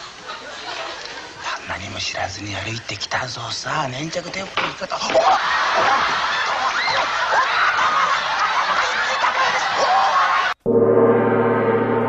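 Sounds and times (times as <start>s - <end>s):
group of people laughing: 0.0s - 1.4s, 4.9s - 10.6s
gong-like tone ringing: 10.6s - 12.0s.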